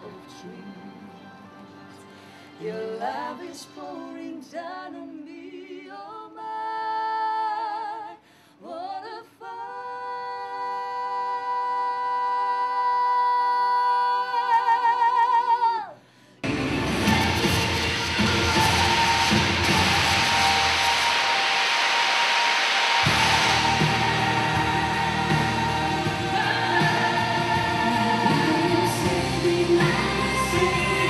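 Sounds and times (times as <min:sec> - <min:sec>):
man and woman singing duet: 0:02.5 - 0:21.6, 0:23.0 - 0:31.0
louder fuller music: 0:16.4 - 0:31.0.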